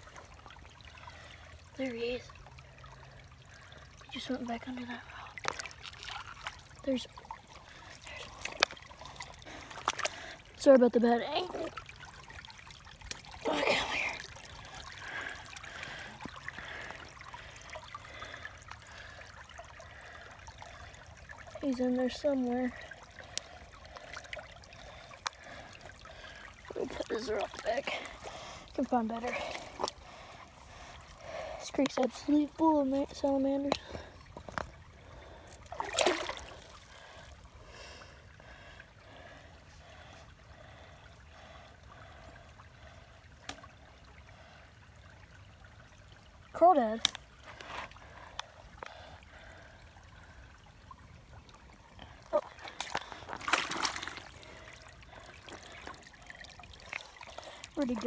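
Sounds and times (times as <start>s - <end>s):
creek water babbling over rocks: 0.0s - 58.0s
hand splashing water: 35.7s - 36.9s, 52.3s - 54.6s.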